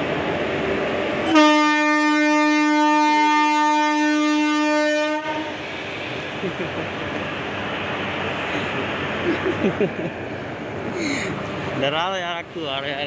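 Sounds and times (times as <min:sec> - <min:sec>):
train running noise: 0:00.0 - 0:13.0
locomotive horn: 0:01.2 - 0:05.6.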